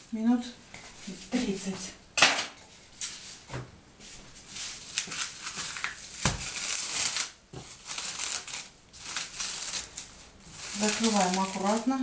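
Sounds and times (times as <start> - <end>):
plastic cling film crinkling: 4.4 - 12.0.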